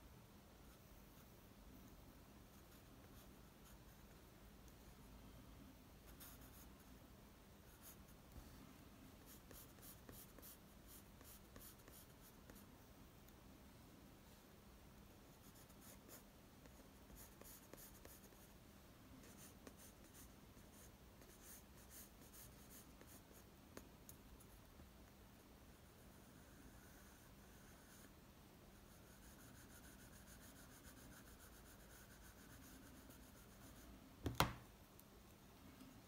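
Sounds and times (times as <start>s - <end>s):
pencil scratching on paper: 6.1s - 6.7s, 9.2s - 12.6s, 15.4s - 18.5s, 19.2s - 23.5s, 25.8s - 28.1s, 28.8s - 33.8s.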